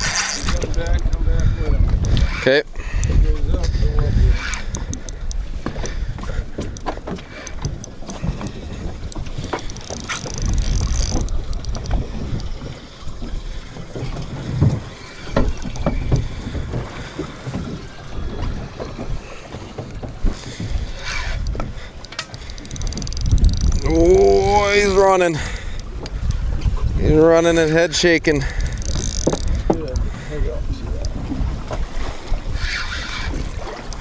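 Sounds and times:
waves slapping boat hull: 0:00.0 - 0:34.0
wind rumbling on microphone: 0:00.0 - 0:34.0
light clicks and knocks: 0:28.5 - 0:30.1.

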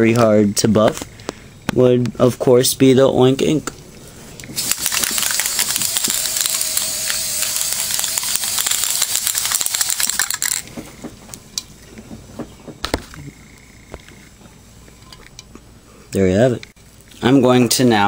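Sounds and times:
aerosol spray can hissing: 0:04.6 - 0:10.3.

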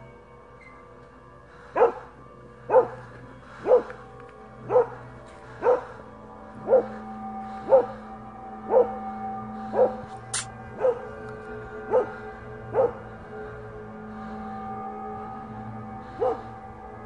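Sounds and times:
dog barking: 0:01.8 - 0:02.1, 0:02.7 - 0:03.0, 0:03.6 - 0:04.0, 0:04.6 - 0:05.0, 0:05.6 - 0:06.0, 0:06.6 - 0:07.0, 0:07.6 - 0:08.0, 0:08.7 - 0:09.0, 0:09.7 - 0:10.0, 0:10.8 - 0:11.0, 0:11.9 - 0:13.0, 0:16.2 - 0:16.5.

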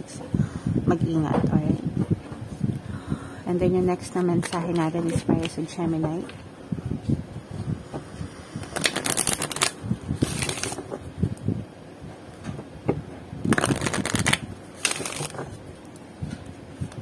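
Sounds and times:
cards being riffle-shuffled: 0:08.6 - 0:11.0, 0:13.5 - 0:16.0.

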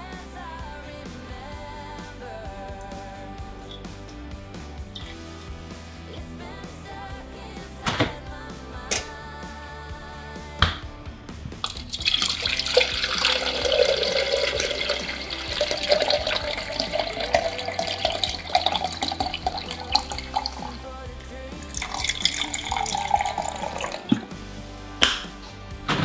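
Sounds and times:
water pouring into plastic jug: 0:11.6 - 0:20.9, 0:21.6 - 0:24.4.

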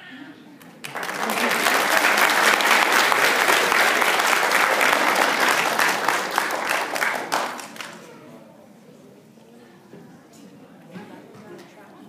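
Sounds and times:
audience applauding: 0:00.8 - 0:08.1.

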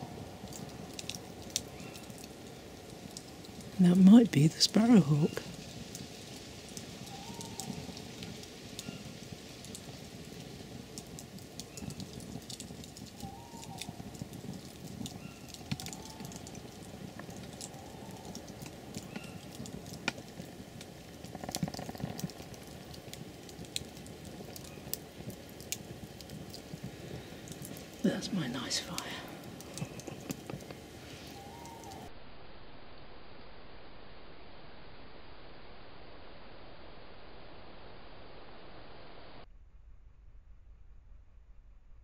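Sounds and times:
rain dripping: 0:00.0 - 0:32.1
faint bird calls: 0:01.7 - 0:02.2, 0:07.0 - 0:07.9, 0:13.2 - 0:14.1, 0:15.1 - 0:19.5, 0:31.0 - 0:32.1.

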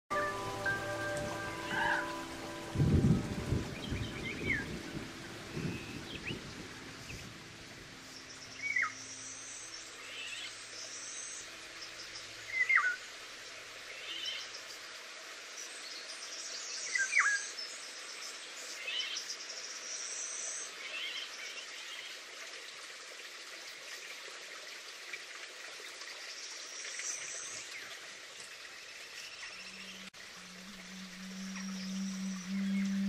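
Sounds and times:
background hiss: 0:00.1 - 0:33.0
low rumble: 0:00.7 - 0:08.6, 0:30.2 - 0:33.0
down-slurred bird whistle: 0:30.6 - 0:33.0.

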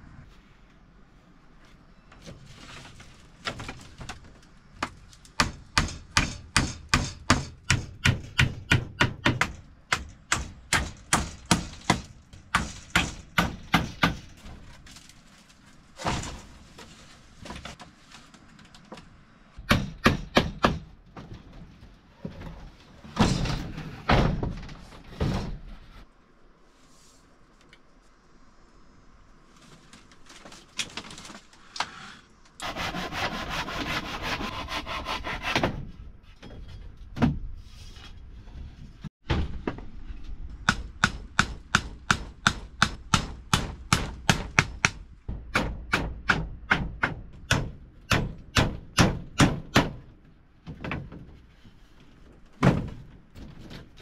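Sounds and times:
rough rubbing or scraping: 0:29.5 - 0:35.7.

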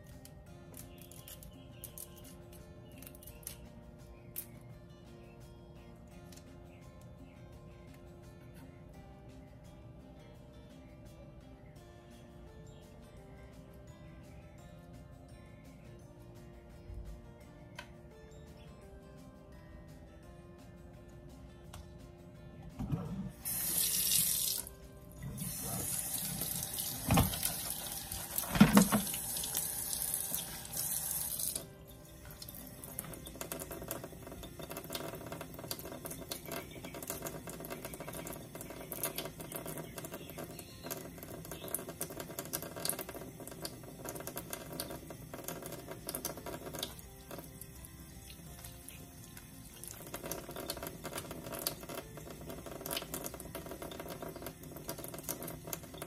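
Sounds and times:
tap running into steel sink: 0:26.2 - 0:27.7, 0:28.3 - 0:29.2.

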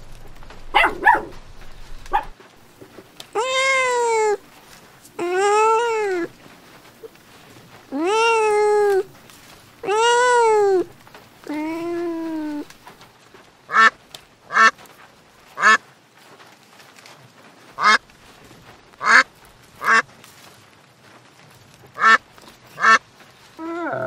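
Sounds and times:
kitten meowing: 0:07.9 - 0:09.2, 0:09.8 - 0:12.7
duck quacking: 0:13.7 - 0:14.8, 0:15.6 - 0:15.8, 0:17.8 - 0:18.0, 0:19.0 - 0:19.2, 0:19.8 - 0:20.0, 0:22.0 - 0:22.2, 0:22.8 - 0:23.0.

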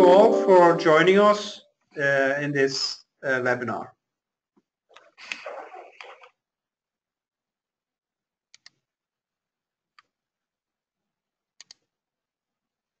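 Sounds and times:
computer mouse clicks: 0:08.5 - 0:08.8, 0:11.6 - 0:11.9.

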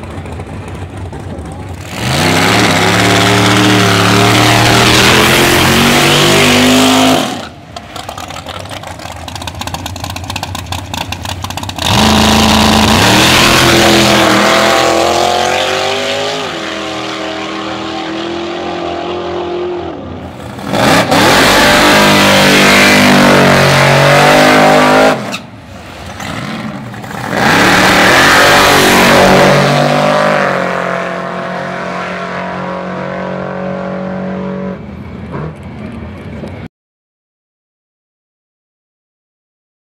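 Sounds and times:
choppy engine idling: 0:00.0 - 0:01.8
drag racing engines accelerating: 0:00.0 - 0:36.6.

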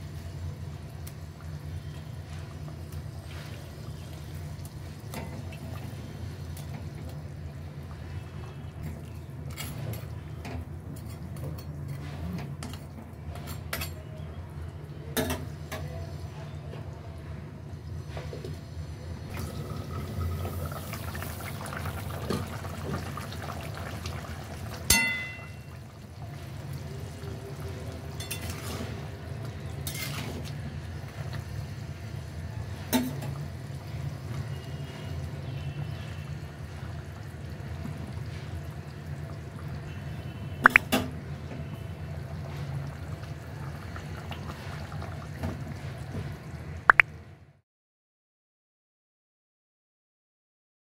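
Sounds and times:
curry bubbling in a pan: 0:17.7 - 0:46.7.

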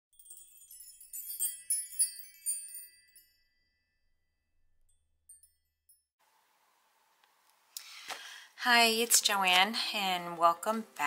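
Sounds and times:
bright chimes tinkling: 0:00.1 - 0:04.1.

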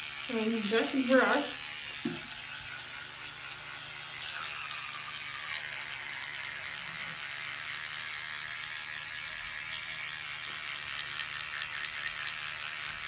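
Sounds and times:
electric toothbrush buzzing: 0:00.0 - 0:13.0
wet brushing against teeth: 0:00.1 - 0:13.0.

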